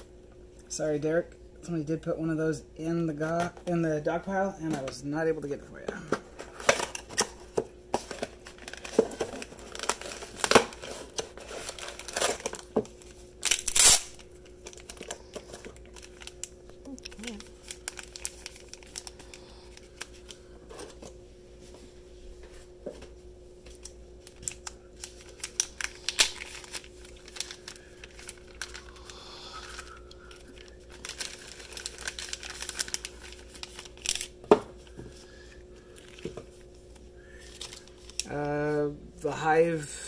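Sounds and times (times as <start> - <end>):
faint steady hum: 0.0 - 40.0
plastic bags crinkling: 6.5 - 20.4, 23.8 - 34.9, 37.3 - 38.5.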